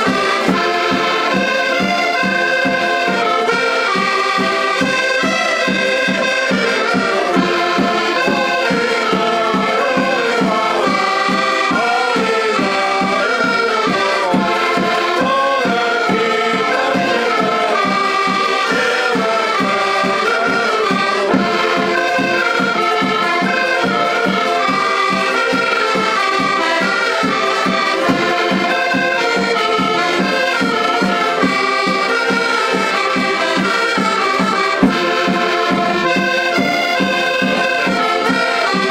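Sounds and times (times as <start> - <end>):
accordions playing folk tune: 0.0 - 38.9.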